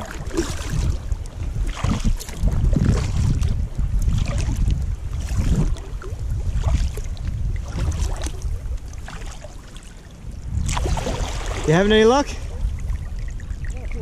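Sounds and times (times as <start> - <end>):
paddle splashing and dripping: 0.0 - 14.0
wind rumble on microphone: 0.0 - 14.0.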